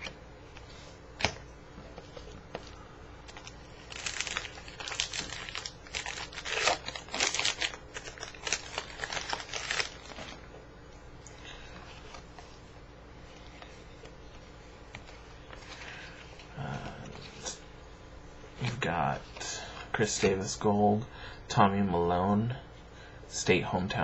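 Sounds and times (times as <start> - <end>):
wrapper tearing and crinkling: 3.3 - 10.4.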